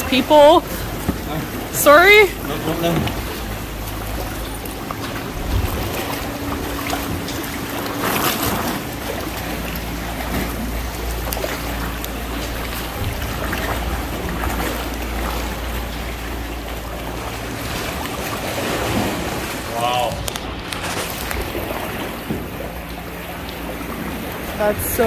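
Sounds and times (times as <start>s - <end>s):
water splashing around a kayak: 0.0s - 25.0s
wind rumble on microphone: 5.2s - 8.9s.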